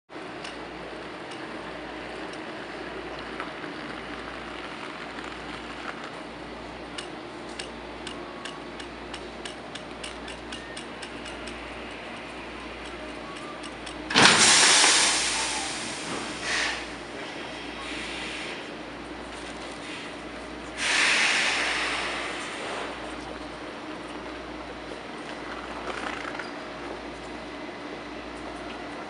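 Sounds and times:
light clicks of creeping train: 0:00.1 - 0:29.0
couplers meeting with hissing air: 0:14.1 - 0:18.8, 0:19.8 - 0:23.0.

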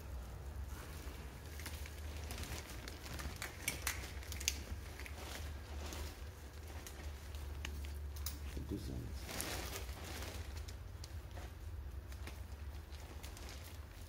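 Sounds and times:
steady low hum: 0:00.0 - 0:14.0
clicks of handling plastic connectors: 0:03.0 - 0:05.2.

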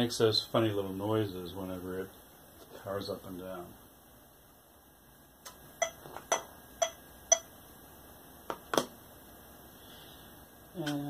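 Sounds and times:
electronic metronome ticking: 0:05.8 - 0:07.5.

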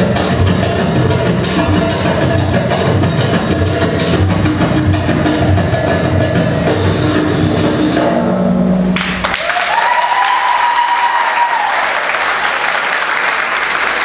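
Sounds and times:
percussive dance music: 0:00.0 - 0:11.7
audience applause: 0:09.0 - 0:14.0.

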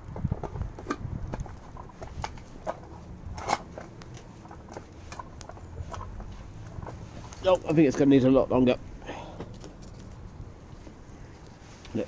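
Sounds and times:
fire popping: 0:00.0 - 0:12.0
wood fire crackling: 0:00.0 - 0:12.0.

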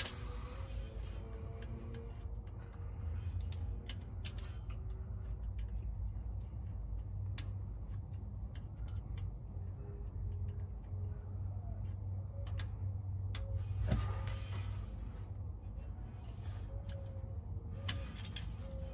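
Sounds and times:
steady low rumble: 0:00.0 - 0:18.9
light metallic clicks and taps: 0:01.6 - 0:14.0.

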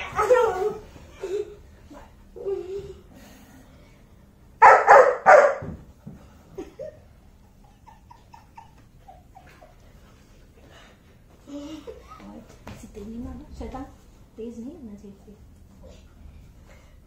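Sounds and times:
puppy barking: 0:04.6 - 0:05.8.

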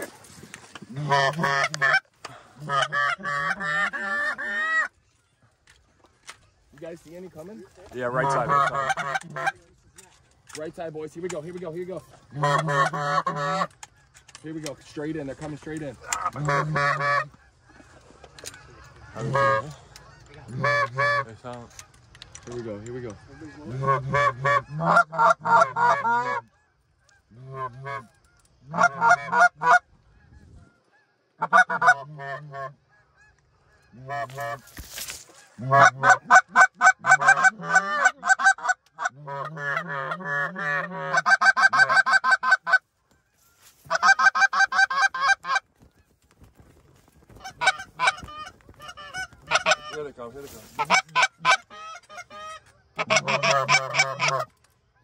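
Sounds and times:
goose honks and clucks: 0:00.0 - 0:55.0
short rustle or knock: 0:34.4 - 0:35.5.

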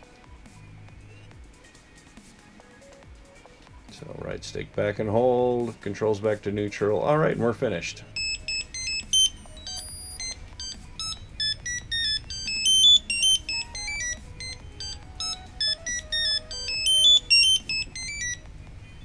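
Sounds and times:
electronic beep tune: 0:08.1 - 0:18.4.

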